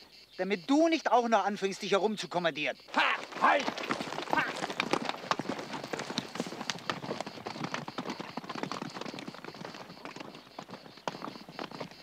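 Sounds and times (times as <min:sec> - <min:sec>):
horse hoofbeats on dry ground: 0:02.8 - 0:12.0.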